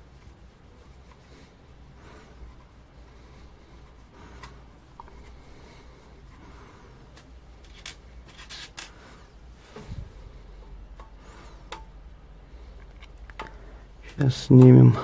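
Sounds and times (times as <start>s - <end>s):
clicks and rubbing of parts: 7.1s - 9.1s, 12.8s - 14.8s.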